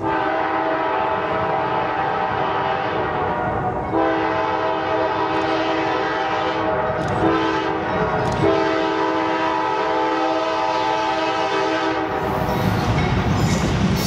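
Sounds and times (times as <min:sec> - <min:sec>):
locomotive air horn blasts: 0:00.0 - 0:12.4
low rumble of train: 0:00.0 - 0:14.0.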